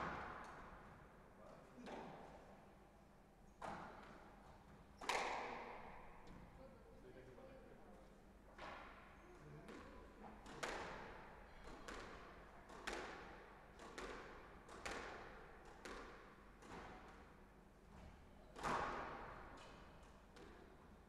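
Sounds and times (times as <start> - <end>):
racket striking squash ball: 0.0 - 1.1, 3.6 - 4.4, 5.0 - 6.5, 9.7 - 17.5, 18.5 - 20.7.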